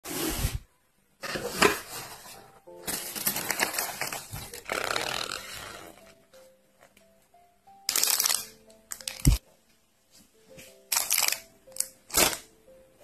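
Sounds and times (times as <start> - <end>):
paper packaging rustling: 1.2 - 6.0, 7.9 - 9.4.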